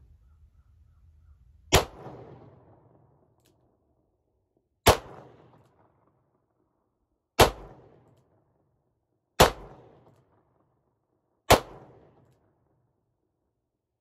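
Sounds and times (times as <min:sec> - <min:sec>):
gunshots with echo: 0:01.7 - 0:03.1, 0:04.8 - 0:05.6, 0:07.4 - 0:08.0, 0:09.4 - 0:10.0.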